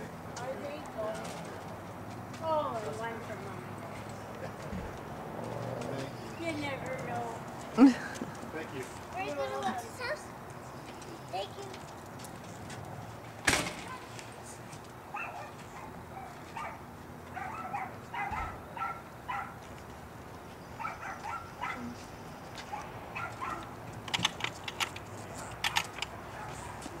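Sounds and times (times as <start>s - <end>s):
dog barking: 15.1s - 19.6s, 20.8s - 22.0s, 22.7s - 23.7s, 25.4s - 26.8s.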